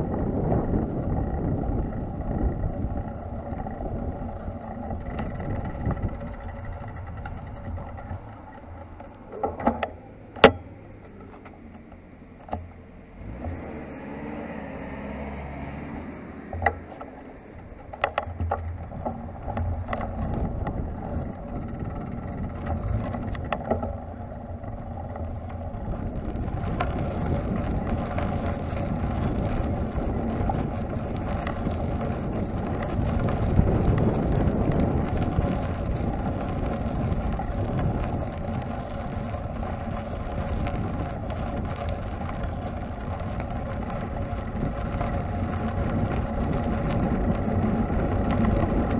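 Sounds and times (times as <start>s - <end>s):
wind on microphone: 0.0s - 10.8s, 13.2s - 48.9s
faint steady whine: 0.0s - 13.2s, 16.1s - 48.9s
wheels rolling over paving: 0.0s - 48.9s.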